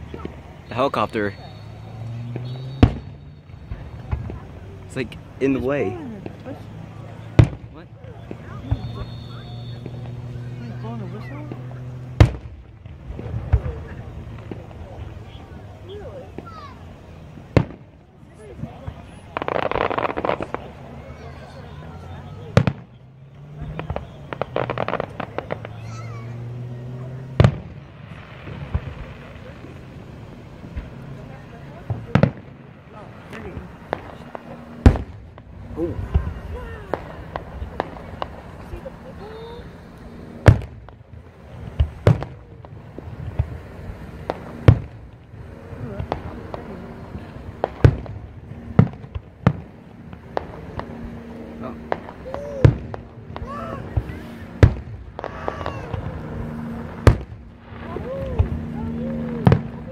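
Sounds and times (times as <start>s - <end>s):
fireworks crackling pops: 0.0s - 59.9s
rumble of distant bursts: 0.0s - 59.9s.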